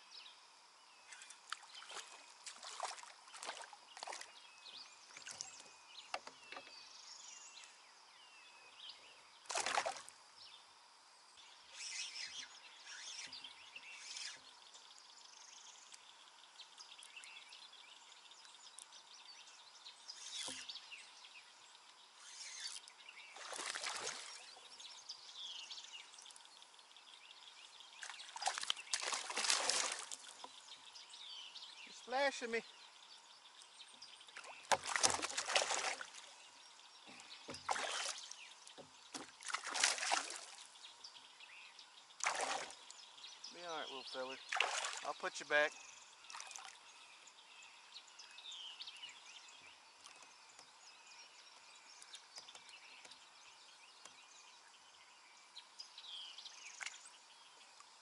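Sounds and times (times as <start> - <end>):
birds singing: 0.0 - 58.0
water sloshing and splashing: 1.1 - 4.4, 9.5 - 10.2, 23.3 - 24.6, 28.0 - 30.6, 34.2 - 36.4, 37.0 - 40.8, 42.2 - 42.9, 44.4 - 45.3, 46.3 - 46.9.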